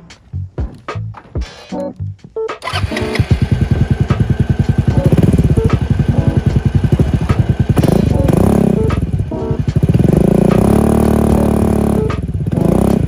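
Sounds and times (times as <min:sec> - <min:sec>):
scooter engine idling and revving: 0:02.6 - 0:13.0.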